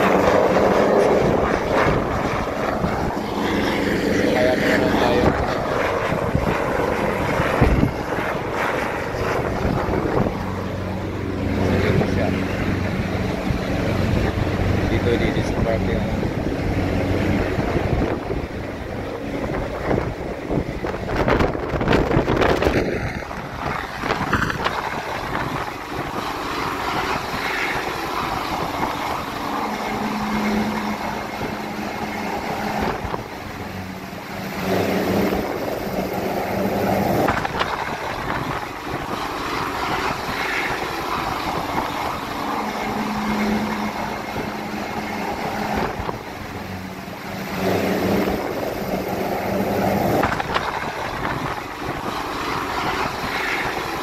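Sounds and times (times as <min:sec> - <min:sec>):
helicopter rotor and engine drone: 0:00.0 - 0:54.0.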